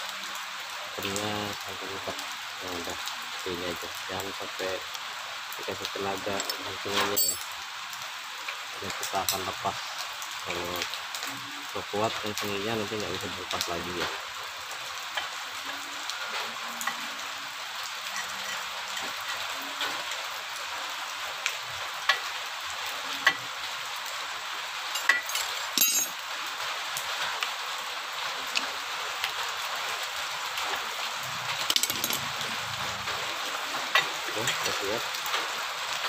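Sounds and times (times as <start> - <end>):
steady background hiss: 0.0 - 36.0
metal parts clattering: 6.4 - 7.5, 25.0 - 26.2, 31.7 - 32.2
small metal clicks and clinks: 6.4 - 7.5, 25.0 - 26.2, 31.7 - 32.3.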